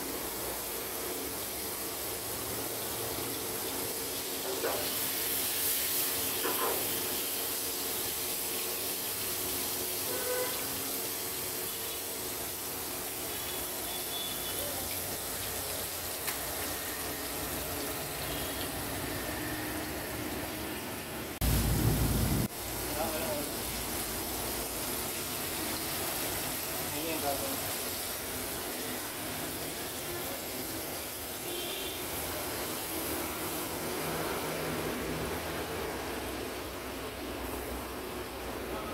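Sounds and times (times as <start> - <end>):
butter sizzling in frying pan: 0.0 - 38.2
loud low rumble: 21.4 - 22.5.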